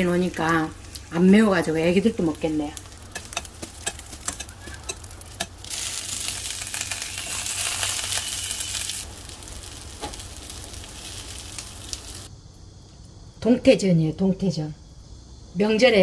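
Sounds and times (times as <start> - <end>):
oil crackling and popping: 0.0 - 12.3
peppers sizzling in oil: 0.0 - 12.3.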